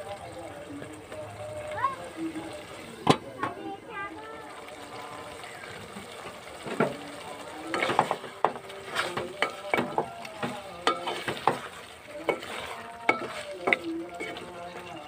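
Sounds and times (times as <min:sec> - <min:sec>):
wooden spatula scraping metal pot: 0:07.7 - 0:15.0.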